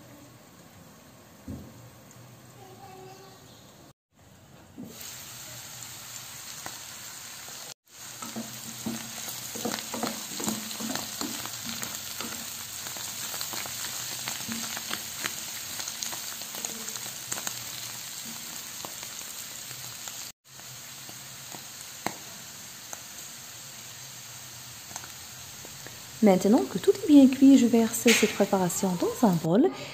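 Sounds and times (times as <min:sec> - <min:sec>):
vegetables sizzling in a frying pan: 0:04.8 - 0:29.8
wooden spatula stirring and knocking: 0:08.1 - 0:13.7.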